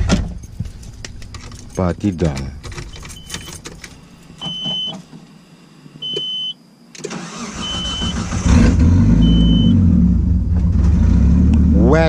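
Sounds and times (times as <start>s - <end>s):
short electronic beeps: 6.0s - 8.3s, 9.2s - 10.5s
engine starter cranking: 7.0s - 9.6s.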